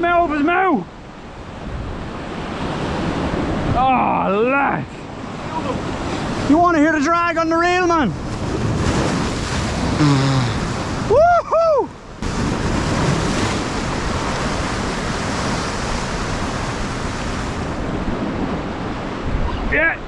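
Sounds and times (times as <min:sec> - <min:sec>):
sea surf breaking: 0:00.0 - 0:20.0
wind buffeting microphone: 0:08.1 - 0:19.9.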